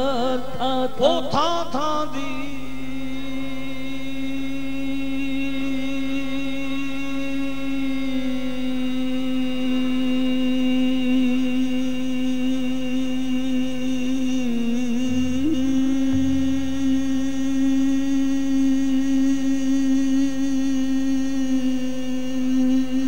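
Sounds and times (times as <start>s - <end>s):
person singing a sustained note: 14.8s - 20.6s.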